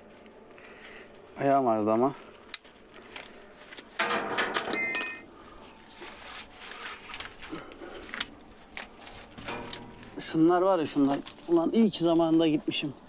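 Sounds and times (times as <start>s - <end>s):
metal hardware rattling: 4.0s - 5.4s, 9.4s - 10.5s
sharp metallic clink: 4.6s - 5.4s.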